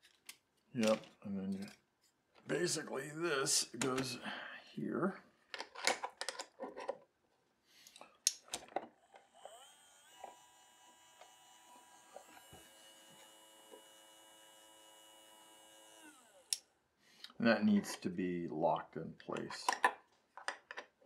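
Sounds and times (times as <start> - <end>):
plastic parts clicking: 5.5 - 7.1, 7.8 - 9.3, 19.4 - 21.0
small gear motor whining: 9.0 - 16.6.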